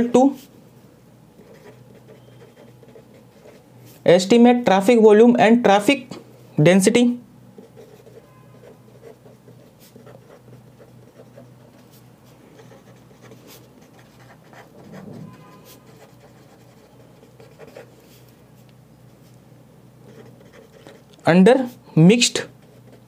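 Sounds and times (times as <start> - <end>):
marker pen scratching on paper: 1.4 - 3.6, 7.6 - 18.3, 20.0 - 21.1, 22.4 - 23.0.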